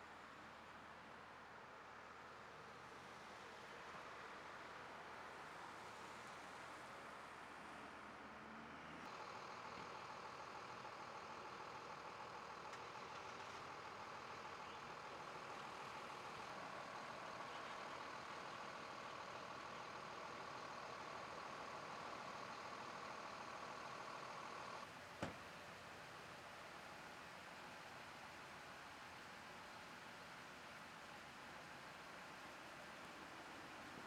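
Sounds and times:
vehicle engine idling: 0:09.0 - 0:34.0.

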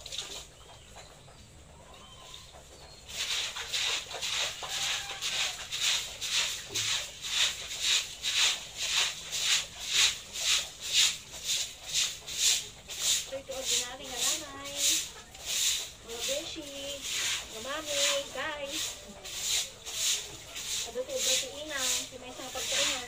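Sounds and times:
rhythmic brushing strokes: 0:02.9 - 0:23.0.

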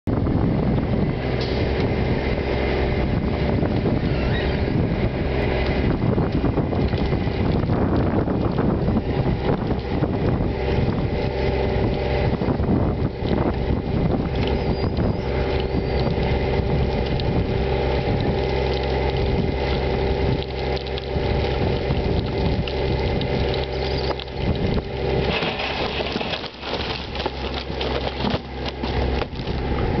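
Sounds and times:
hydraulics running: 0:00.2 - 0:30.0
wooden ties clattering to ground: 0:25.2 - 0:29.8.

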